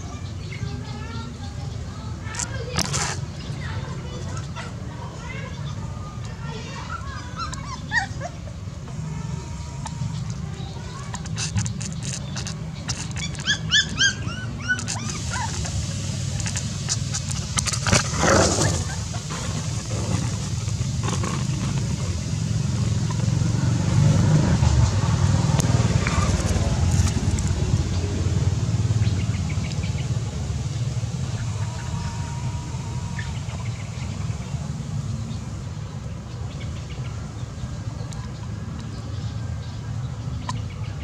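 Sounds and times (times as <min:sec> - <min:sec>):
steady low rumble: 0:07.8 - 0:40.4
short high squeaks: 0:10.9 - 0:15.7
dry twigs rustling and clicking: 0:11.1 - 0:13.6, 0:16.4 - 0:18.2.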